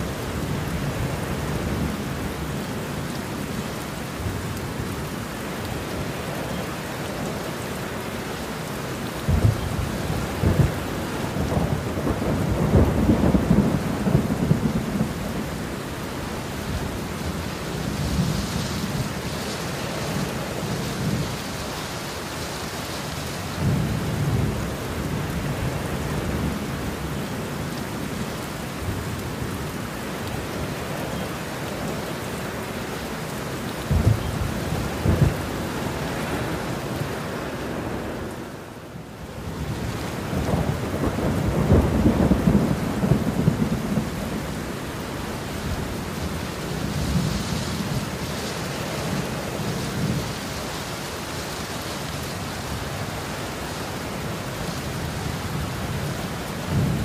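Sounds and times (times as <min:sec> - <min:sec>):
heavy rain: 0:00.0 - 0:57.0
rolling thunder rumble: 0:09.2 - 0:15.8, 0:33.8 - 0:38.4, 0:39.6 - 0:44.8, 0:54.9 - 0:57.0
thunder claps: 0:33.9 - 0:35.4.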